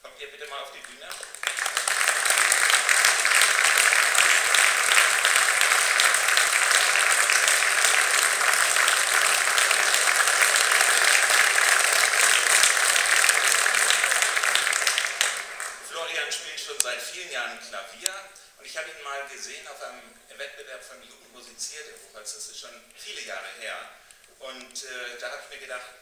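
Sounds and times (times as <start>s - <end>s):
audience clapping: 0.4s - 16.2s.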